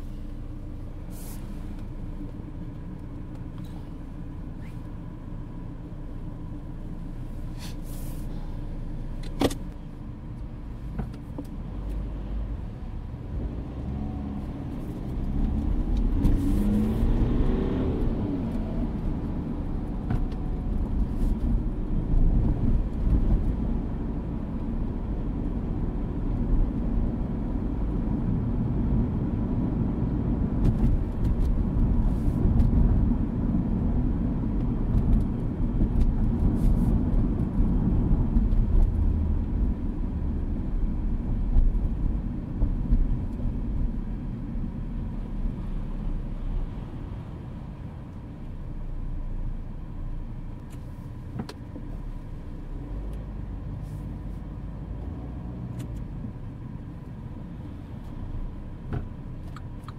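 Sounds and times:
road noise: 0.0 - 59.9
car engine revving: 13.4 - 21.1.

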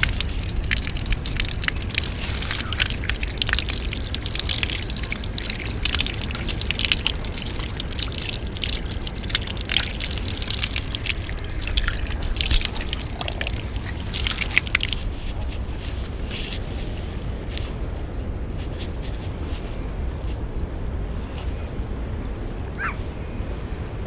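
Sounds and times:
water running from tap: 0.0 - 15.2
water splashing: 0.0 - 16.2.

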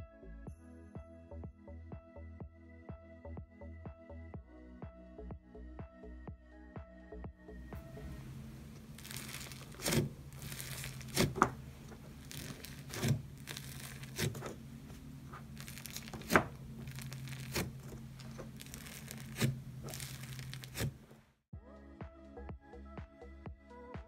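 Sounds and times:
steady low hum: 7.4 - 21.4
slime tearing and crinkling: 8.8 - 21.1
slime crackling pops: 9.0 - 11.6, 15.6 - 21.0.

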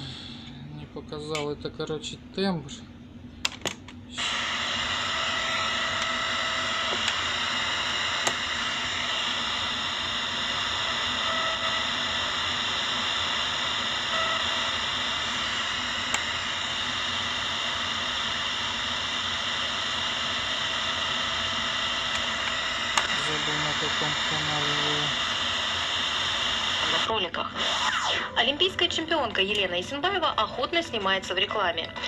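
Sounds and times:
radio static hiss: 4.1 - 29.8.

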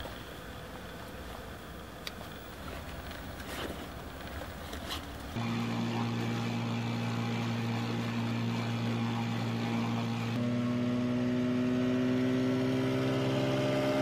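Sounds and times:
outboard motor humming: 0.0 - 14.0
soft rustling: 2.5 - 5.4.

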